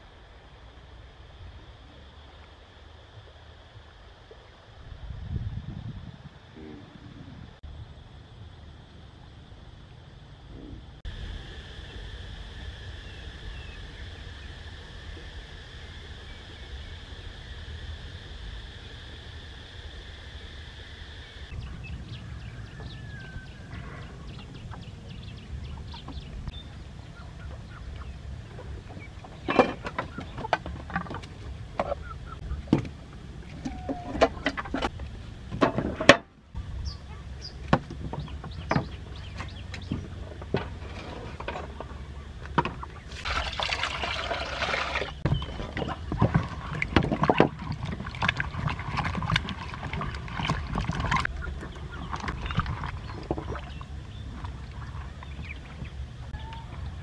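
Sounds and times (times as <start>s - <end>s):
chickens clucking: 27.2s - 32.7s.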